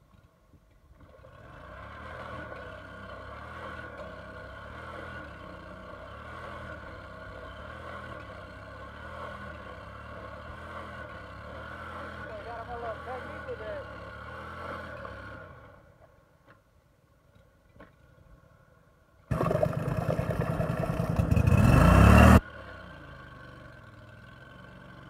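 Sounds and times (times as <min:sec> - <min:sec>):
outboard motor running hard: 0:19.3 - 0:22.4.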